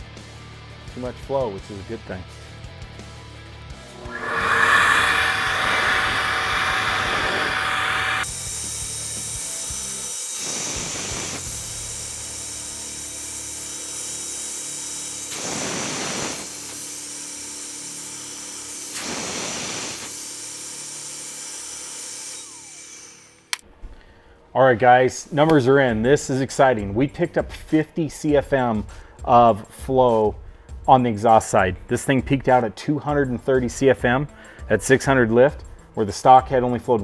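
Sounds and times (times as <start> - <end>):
flow bench motors whirring: 3.9 - 8.3.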